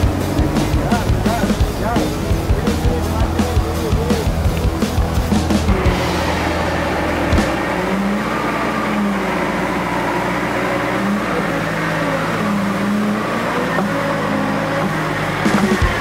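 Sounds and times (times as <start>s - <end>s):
off-road vehicle engine running: 0.0s - 16.0s.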